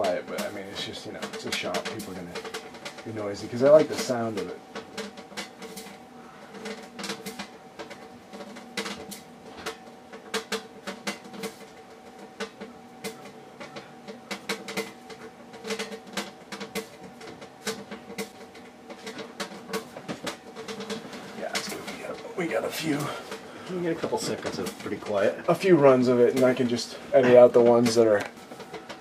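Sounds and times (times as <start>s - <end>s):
electrical hum: 0.0s - 29.0s.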